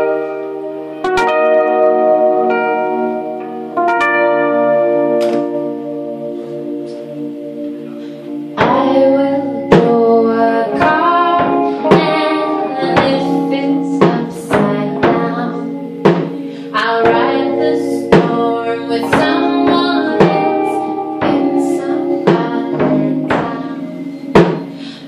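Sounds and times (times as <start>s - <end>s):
electric guitar: 0.0s - 25.0s
sustained chords: 0.0s - 25.0s
drum strikes: 5.1s - 5.7s, 8.6s - 24.9s
woman singing: 8.6s - 25.0s.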